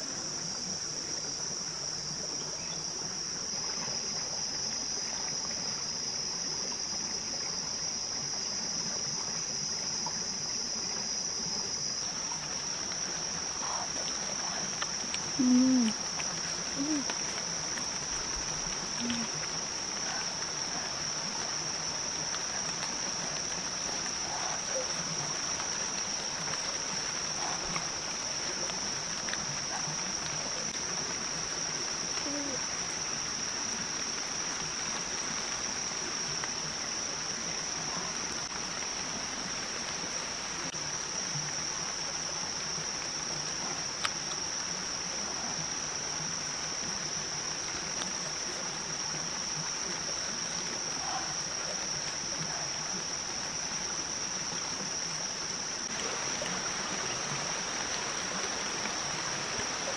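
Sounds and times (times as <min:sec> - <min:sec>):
high-pitched insect chorus: 0:00.0 - 0:59.9.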